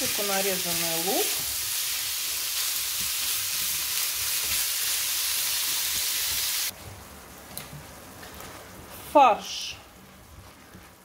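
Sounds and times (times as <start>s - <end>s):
meat sizzling in a skillet: 0.0s - 6.8s.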